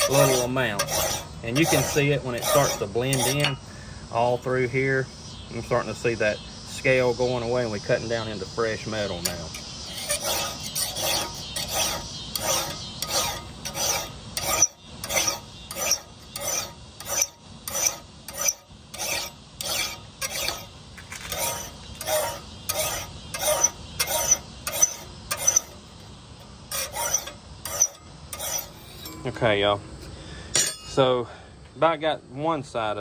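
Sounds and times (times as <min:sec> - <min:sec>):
file rasping on metal: 0:00.0 - 0:03.6, 0:09.0 - 0:25.8, 0:26.7 - 0:29.1.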